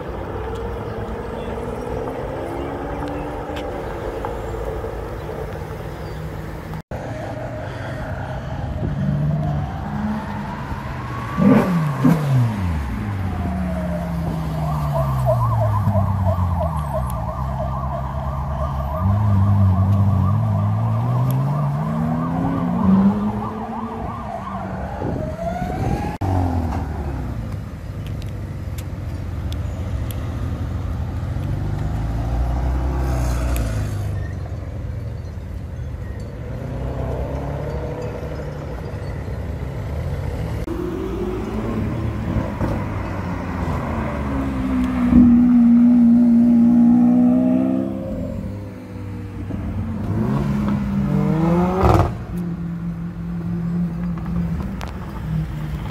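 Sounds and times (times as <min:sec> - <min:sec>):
emergency vehicle siren wailing: 0:07.0 - 0:26.6, 0:40.2 - 0:49.4
car engine revving: 0:40.3 - 0:52.4.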